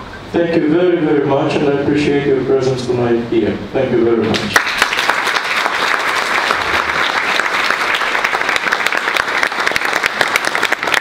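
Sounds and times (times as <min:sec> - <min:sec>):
audience applause: 0:04.4 - 0:11.0.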